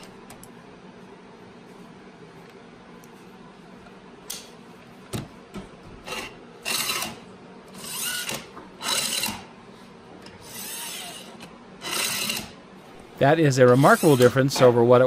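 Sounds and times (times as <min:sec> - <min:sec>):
clamp sliding along bar: 0:13.6 - 0:14.7.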